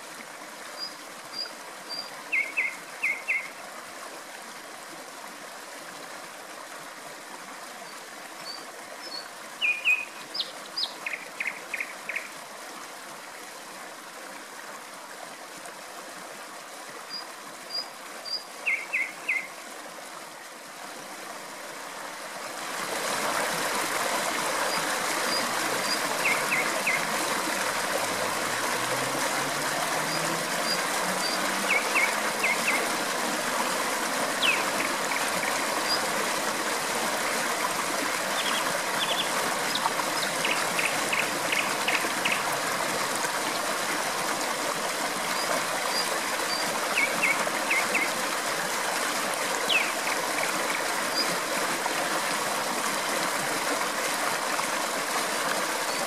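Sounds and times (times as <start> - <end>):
flowing water rushing: 0.0 - 56.0
nightingale singing: 1.9 - 3.5, 9.1 - 12.3, 17.8 - 19.5, 25.3 - 27.1, 30.0 - 32.9, 34.4 - 35.2, 49.7 - 50.0.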